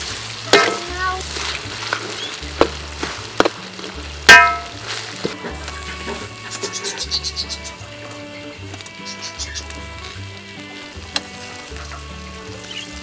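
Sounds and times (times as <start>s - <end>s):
metal spatula scraping wok: 0.0s - 8.2s
food sizzling in hot oil: 0.0s - 13.0s
sharp metal clangs: 4.3s - 4.8s.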